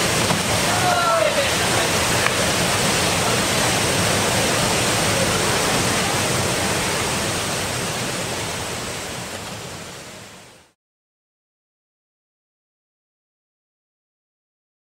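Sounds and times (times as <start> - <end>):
waterfall pouring into pool: 0.0 - 10.8.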